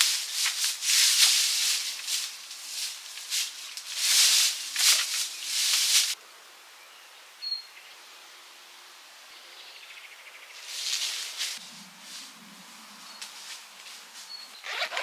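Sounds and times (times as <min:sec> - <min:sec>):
scratchy rustling from hands: 0:00.0 - 0:06.2.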